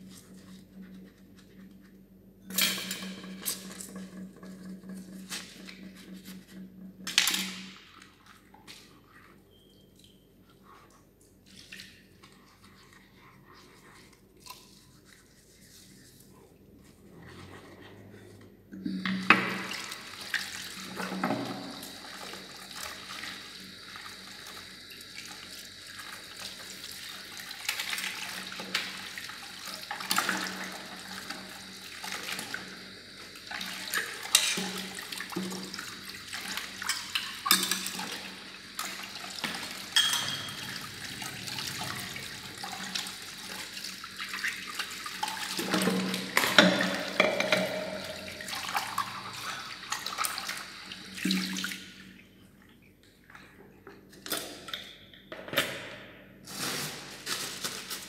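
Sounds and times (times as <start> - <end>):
tap water running into sink: 19.0 - 51.8
crockery and utensils clinking: 39.9 - 40.7.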